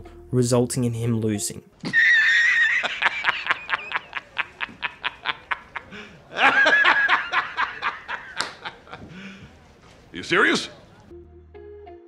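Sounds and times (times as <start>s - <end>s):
man laughing hysterically: 1.8s - 9.4s.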